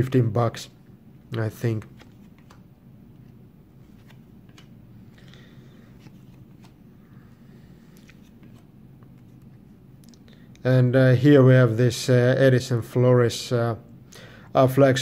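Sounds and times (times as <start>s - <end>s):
cards sliding swishes: 1.7s - 9.8s
card edges clicking: 1.8s - 2.7s, 3.9s - 4.8s.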